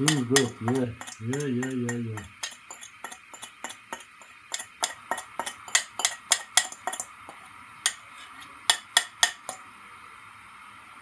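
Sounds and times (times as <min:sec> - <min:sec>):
fork scraping ceramic bowl: 0:00.0 - 0:09.6.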